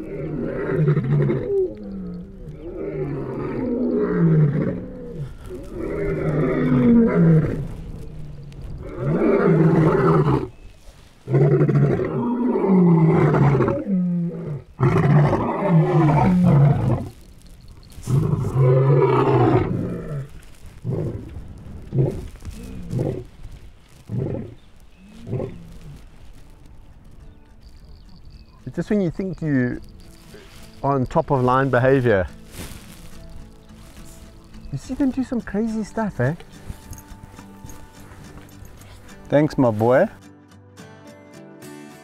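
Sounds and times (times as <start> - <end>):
lions roaring: 0.0 - 10.6, 11.2 - 17.2, 18.0 - 23.3, 24.1 - 26.0.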